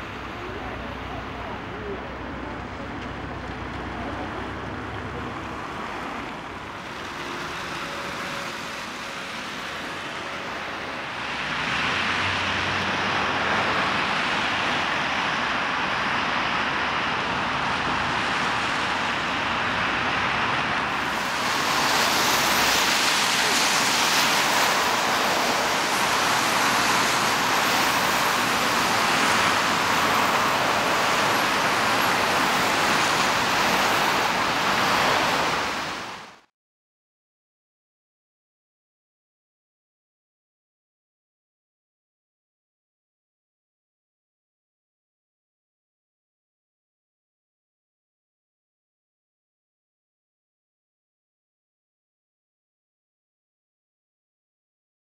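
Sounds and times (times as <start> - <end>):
car engines passing: 0.0 - 36.4
tyres hissing on wet road: 0.0 - 36.5.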